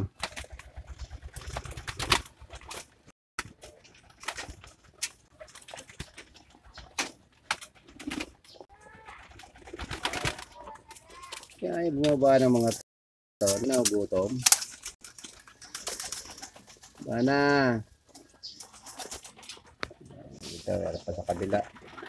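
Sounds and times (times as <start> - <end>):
wing flutters: 0.1 - 11.6, 13.4 - 22.0
beaks pecking grain: 13.4 - 22.0.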